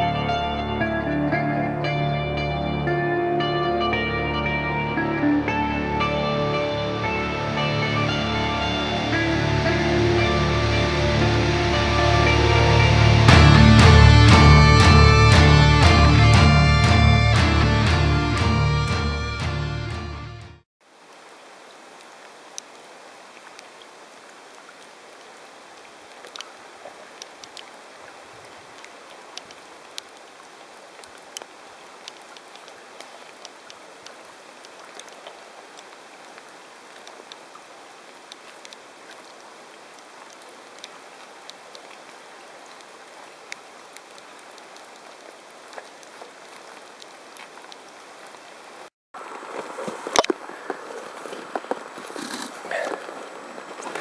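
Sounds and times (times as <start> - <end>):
river water flowing: 0.0 - 19.5, 20.8 - 54.0
small drips and splashes: 20.8 - 48.9.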